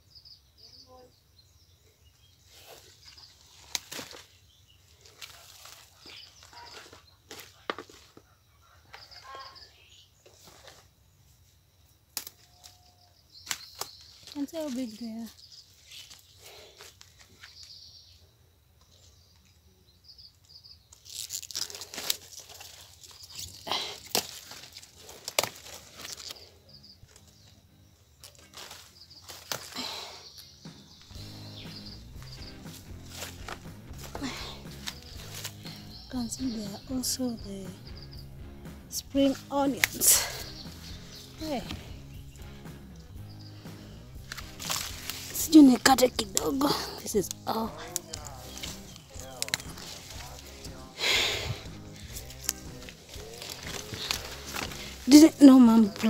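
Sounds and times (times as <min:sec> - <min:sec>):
small birds chirping: 0:00.0 - 0:56.0
leaves rustling: 0:02.4 - 0:08.2, 0:12.2 - 0:17.8, 0:20.8 - 0:37.6, 0:39.0 - 0:56.0
stalks snapping: 0:03.1 - 0:04.3, 0:12.1 - 0:12.8, 0:13.4 - 0:14.8, 0:20.9 - 0:26.5, 0:28.2 - 0:30.5, 0:32.2 - 0:35.8, 0:39.3 - 0:42.0, 0:44.2 - 0:56.0.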